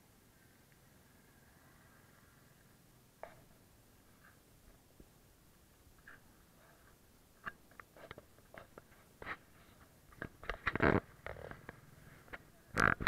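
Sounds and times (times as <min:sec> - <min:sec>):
camera scraping clothing: 0:07.9 - 0:13.0.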